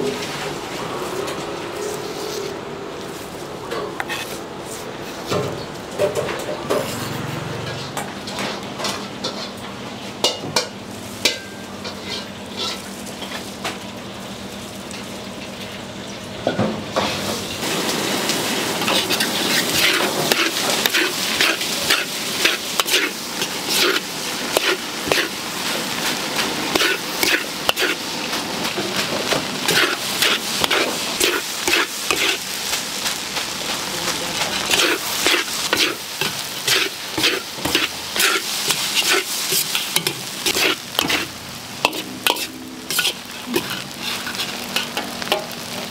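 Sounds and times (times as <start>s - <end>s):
rice sizzling: 0.0s - 45.9s
metal spatula scraping a wok: 0.1s - 3.3s, 4.0s - 5.5s, 6.6s - 8.6s, 9.2s - 9.6s, 11.1s - 13.5s, 18.4s - 33.0s, 34.4s - 45.9s.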